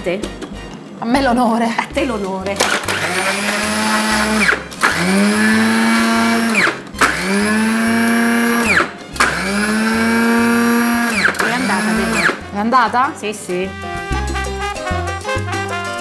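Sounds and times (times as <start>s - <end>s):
electric chopper motor humming: 2.6s - 12.4s.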